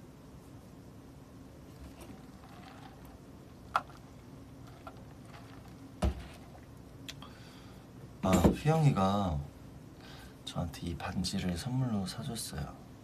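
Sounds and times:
faint steady hum: 0.0s - 13.0s
cup thumping on desk: 6.0s - 6.4s.

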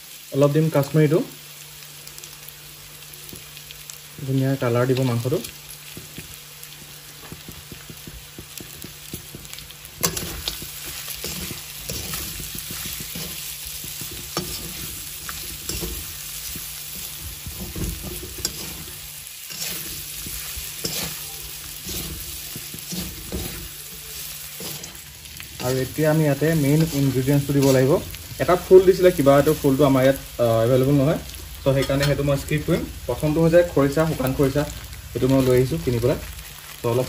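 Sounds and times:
meat and onion sizzling in oil: 0.0s - 37.0s
metal spatula scraping a pan: 9.1s - 28.1s, 31.7s - 32.2s.

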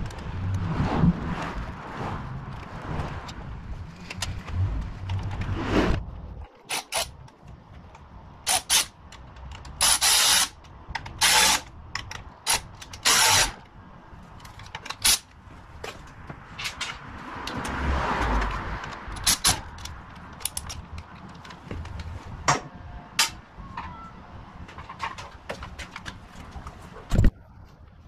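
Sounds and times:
harsh scraping: 0.3s - 6.4s
metal parts clicking and knocking: 6.4s - 13.7s, 14.3s - 15.3s, 18.4s - 22.1s, 23.2s - 24.0s.

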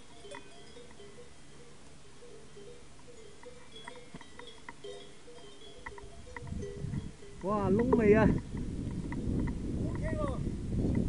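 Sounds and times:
metal bells clanking: 0.0s - 8.6s
light ticks: 3.4s - 4.8s, 5.4s - 10.1s.

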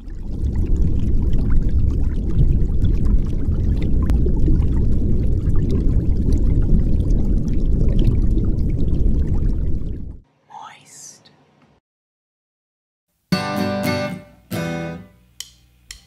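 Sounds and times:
small bubbly ticks: 0.0s - 10.0s.

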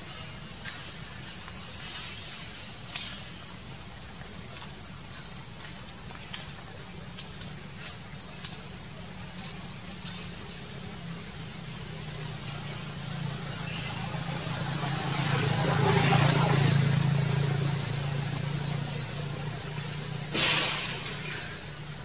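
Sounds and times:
low engine hum: 3.8s - 22.0s
high-pitched insect drone: 8.2s - 22.0s.

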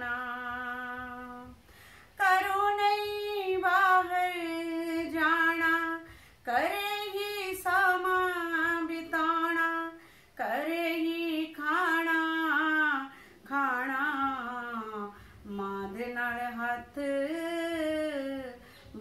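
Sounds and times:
singer breathing: 1.6s - 2.2s, 6.0s - 6.5s, 10.0s - 10.4s, 13.1s - 13.4s, 15.1s - 15.4s, 18.6s - 19.0s.

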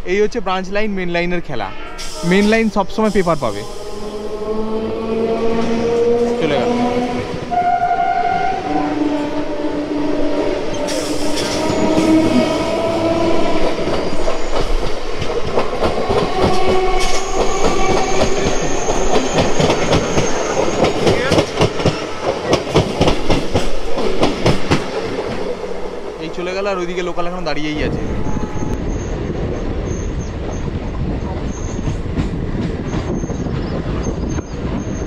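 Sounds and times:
electric train whine: 1.8s - 35.0s
train wheels rattling over rail joints: 9.1s - 35.0s.

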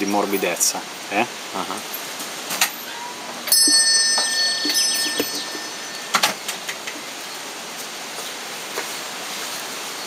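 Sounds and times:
small metal bell ringing: 3.5s - 6.6s.

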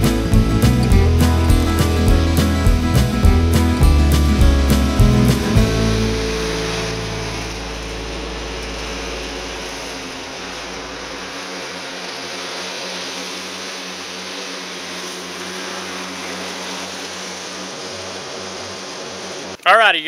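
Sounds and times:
deep low rumble: 0.0s - 11.4s
lawn mower engine running: 0.0s - 19.7s.

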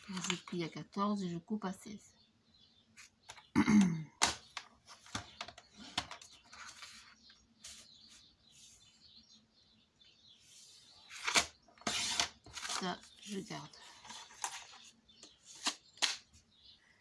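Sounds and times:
paper rustling: 11.1s - 14.9s.

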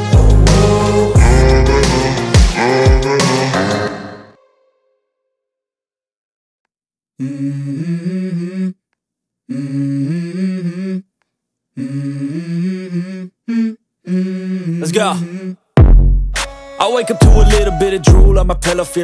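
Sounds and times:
low hummed vocal melody: 0.2s - 4.3s, 7.2s - 8.8s, 9.5s - 11.0s, 11.8s - 15.6s, 17.2s - 19.0s.

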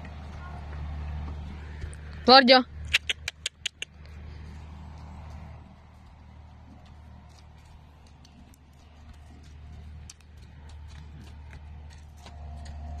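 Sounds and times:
hooves clicking on mud: 0.0s - 2.2s, 2.9s - 13.0s.

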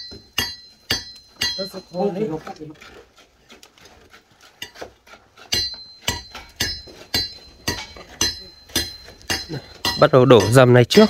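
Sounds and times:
metal striking metal: 0.0s - 2.5s, 5.4s - 11.0s.

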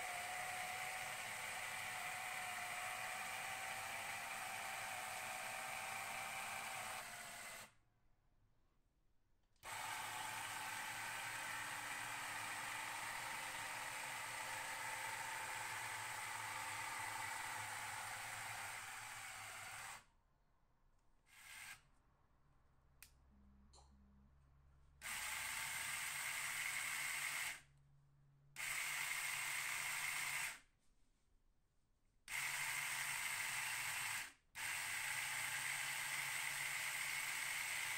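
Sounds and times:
small electric motors whirring: 0.0s - 7.7s, 9.6s - 20.0s
click: 23.0s - 24.0s.

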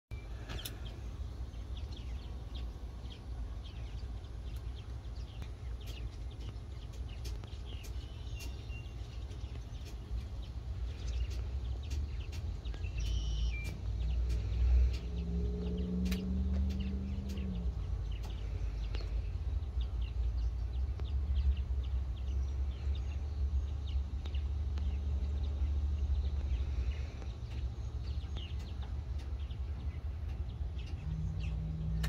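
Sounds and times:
bird chirps: 0.1s - 32.0s
low steady hum: 0.1s - 32.0s
faint clicks: 0.4s - 1.0s, 11.0s - 19.3s, 26.4s - 32.0s.

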